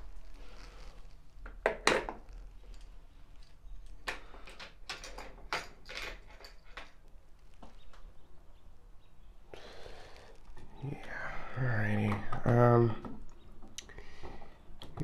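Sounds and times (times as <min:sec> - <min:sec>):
hand tools clinking and knocking: 0:01.4 - 0:07.1.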